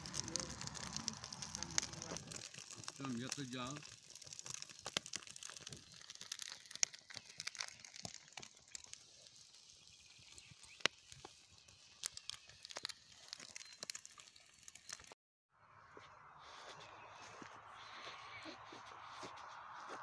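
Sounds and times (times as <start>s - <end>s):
eggs frying hiss: 0.0s - 15.2s
fire crackling and popping: 0.0s - 15.2s.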